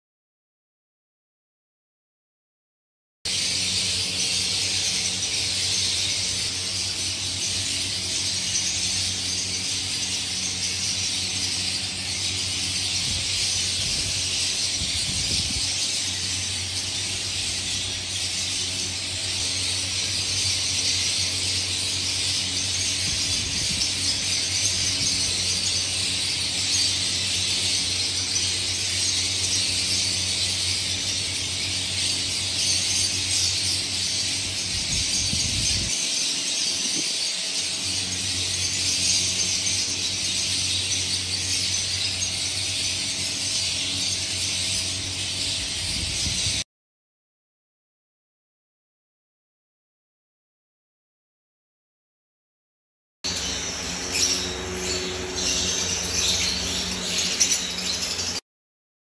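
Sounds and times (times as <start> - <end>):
flock of lovebirds chattering: 53.3 - 58.4.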